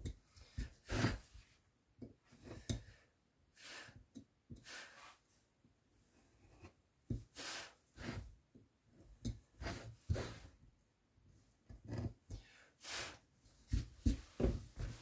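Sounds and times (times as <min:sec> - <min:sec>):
carving blade scraping wood: 0:00.4 - 0:01.2.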